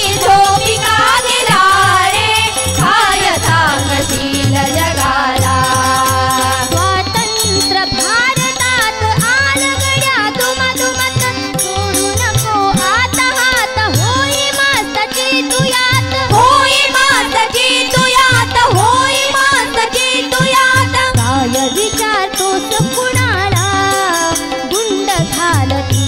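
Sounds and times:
hand drum beat: 0:00.0 - 0:06.8
harmonium: 0:00.0 - 0:26.0
women singing in unison: 0:00.0 - 0:26.0.

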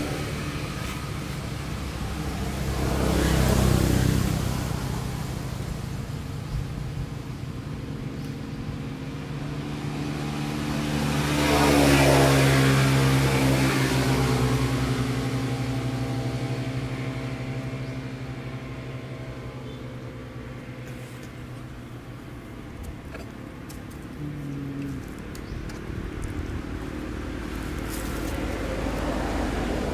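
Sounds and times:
motor engine passing by: 0:00.0 - 0:06.6, 0:07.5 - 0:23.3, 0:23.9 - 0:29.9.

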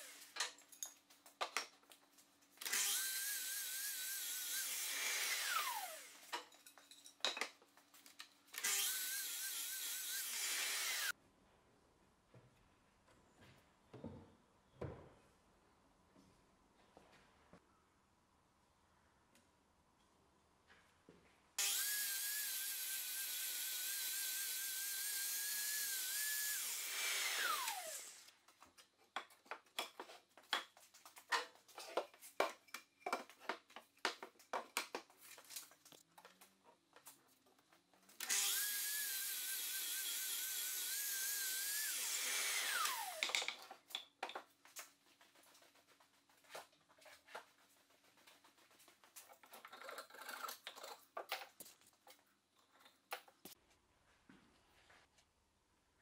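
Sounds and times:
mitre saw cutting wood: 0:02.6 - 0:06.3, 0:08.6 - 0:11.1, 0:21.6 - 0:28.3, 0:38.2 - 0:43.5.

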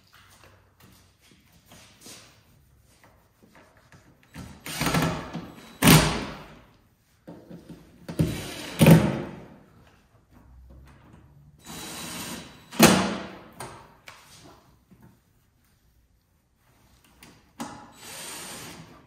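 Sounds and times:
cordless drill whirring: 0:11.6 - 0:12.6, 0:17.9 - 0:18.9.

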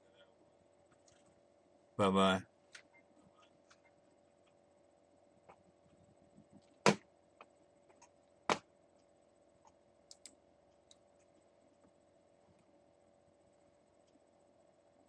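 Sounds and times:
faint room hum: 0:00.0 - 0:15.0
sharp clicks: 0:10.1 - 0:11.0.

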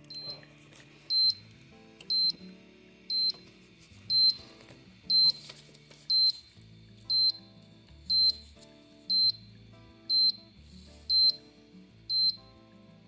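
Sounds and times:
background music: 0:00.0 - 0:13.0
short high beeps: 0:00.1 - 0:00.4, 0:07.1 - 0:07.5, 0:08.1 - 0:08.5, 0:09.1 - 0:09.5, 0:10.1 - 0:11.5.

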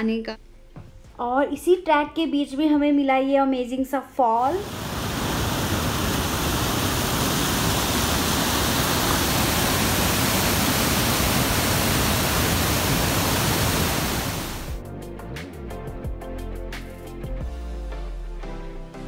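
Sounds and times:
waterfall rushing over rock: 0:04.6 - 0:14.8
music with regular beat: 0:14.7 - 0:19.0.

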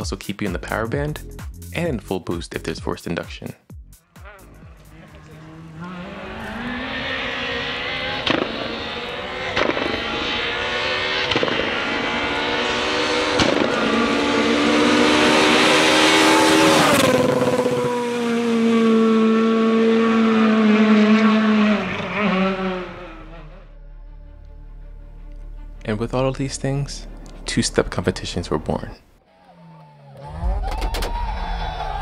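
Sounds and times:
rally car engine at full throttle: 0:04.2 - 0:24.8.

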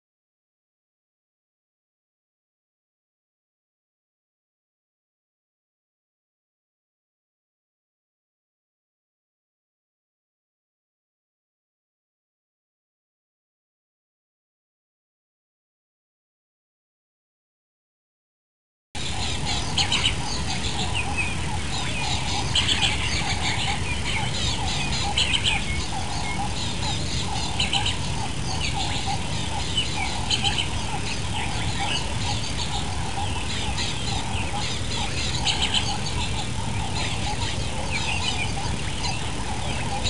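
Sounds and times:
birds chirping: 0:19.0 - 0:40.0
low steady rumble: 0:19.0 - 0:40.0.

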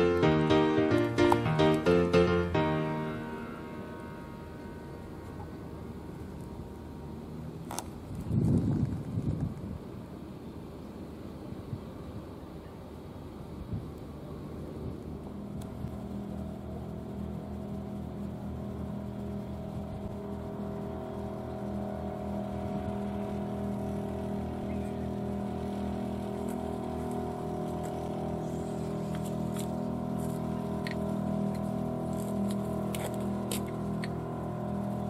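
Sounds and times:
engine running: 0:00.0 - 0:35.0.

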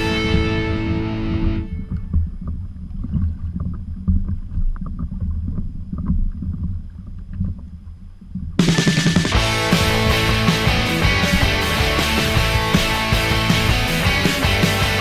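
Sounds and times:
water slapping kayak hull: 0:00.0 - 0:15.0
background music: 0:09.3 - 0:15.0.

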